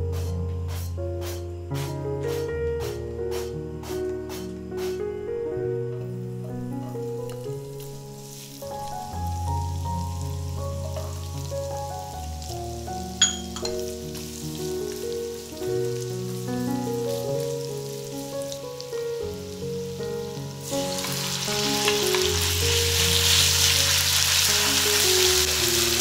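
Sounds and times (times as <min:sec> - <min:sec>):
background music: 0:00.0 - 0:26.0
food sizzling in oil: 0:07.1 - 0:26.0
beef sizzling loudly in oil: 0:07.5 - 0:26.0.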